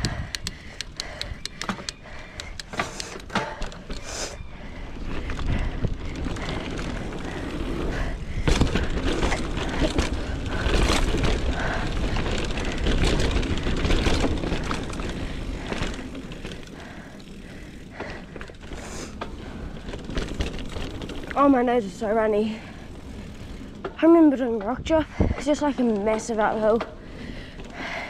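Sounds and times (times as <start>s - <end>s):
wind rush on microphone: 0.0s - 3.2s, 3.9s - 16.2s, 24.8s - 25.6s
bike rattling and knocking: 0.0s - 28.0s.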